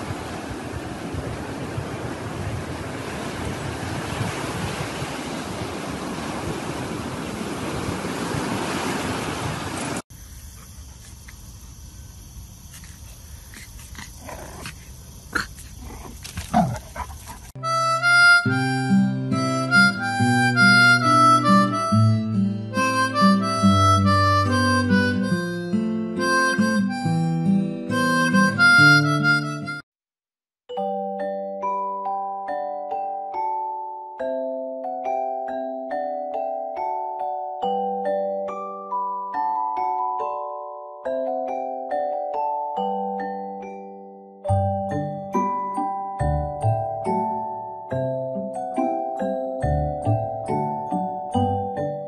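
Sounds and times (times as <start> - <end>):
surf on a beach: 0.0 - 10.0
wind: 0.0 - 29.7
instrumental music: 17.6 - 29.8, 30.7 - 52.0.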